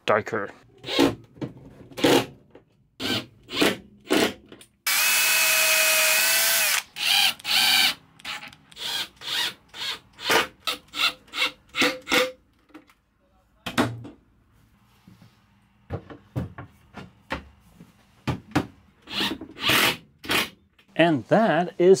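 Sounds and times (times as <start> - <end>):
cordless drill driving screws: 3.0 - 4.2, 4.9 - 11.5, 19.1 - 20.5.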